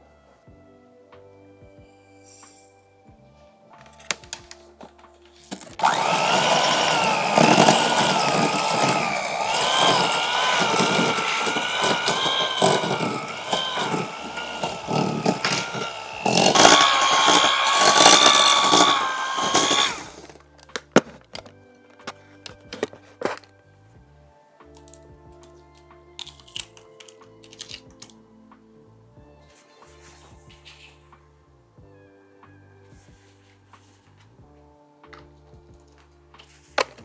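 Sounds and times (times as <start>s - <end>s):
electric hand mixer running: 5.6s - 20.4s.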